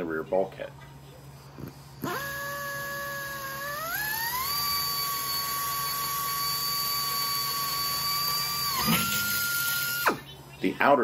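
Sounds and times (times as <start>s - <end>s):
pneumatic air drill whining: 1.6s - 10.3s.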